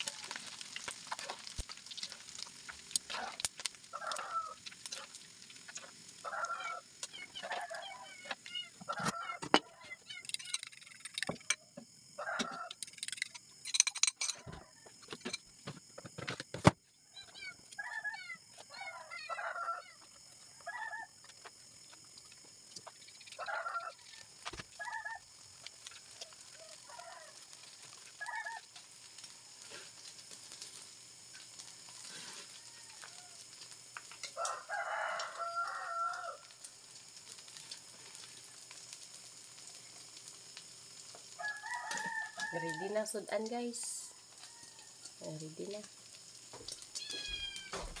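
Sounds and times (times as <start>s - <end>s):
rooster crowing: 0.0s - 0.5s, 3.9s - 4.6s, 6.2s - 9.9s, 12.1s - 12.8s, 17.0s - 21.2s, 23.3s - 25.3s, 26.2s - 27.6s, 31.5s - 33.5s, 34.2s - 36.6s, 41.3s - 43.1s, 43.9s - 45.2s
kitchen utensils clanking: 12.8s - 15.5s.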